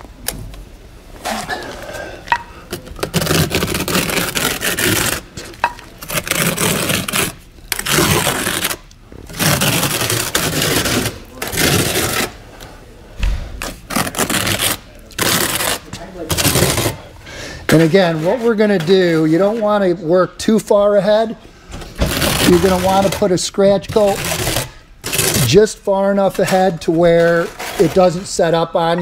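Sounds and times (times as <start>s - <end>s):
trowel scraping mortar: 3.0s - 12.4s, 13.7s - 17.0s, 22.0s - 25.7s, 26.3s - 28.5s.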